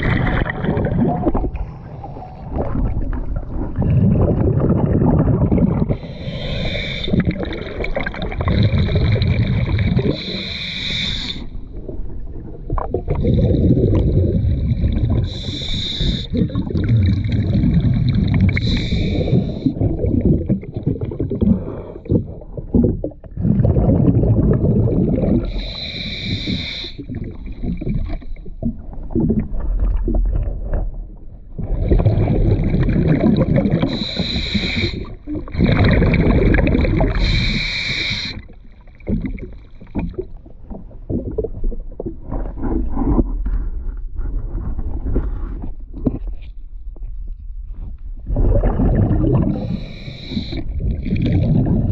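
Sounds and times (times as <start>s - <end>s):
bubbling exhalations: 0.0s - 43.4s, 48.2s - 51.9s
hissing regulator inhalations: 5.9s - 7.4s, 10.1s - 11.5s, 15.3s - 16.6s, 18.5s - 19.8s, 25.4s - 27.1s, 33.8s - 35.2s, 37.1s - 38.5s, 49.5s - 50.7s.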